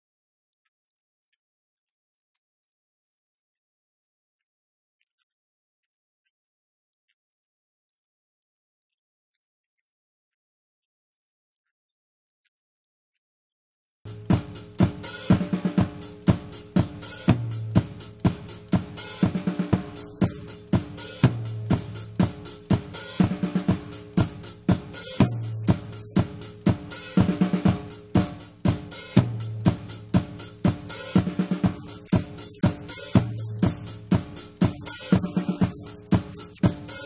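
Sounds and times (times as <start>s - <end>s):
drum kit groove: 14.1s - 37.0s.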